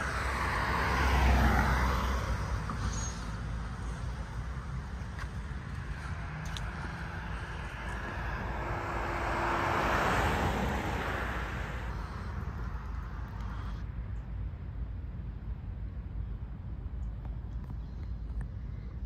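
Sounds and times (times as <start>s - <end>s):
car passing by: 0.0s - 13.8s
steady low rumble: 2.4s - 19.0s.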